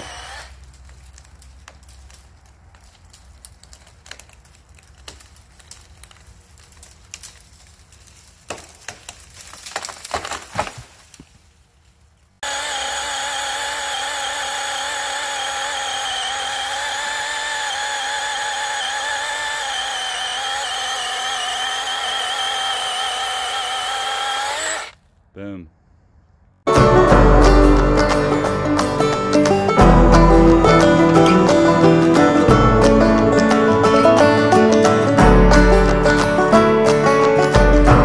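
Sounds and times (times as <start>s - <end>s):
chainsaw sawing log: 0.0s - 0.7s, 12.4s - 25.0s
tree cracking and snapping: 0.0s - 25.0s
tree crashing through branches: 0.1s - 24.9s.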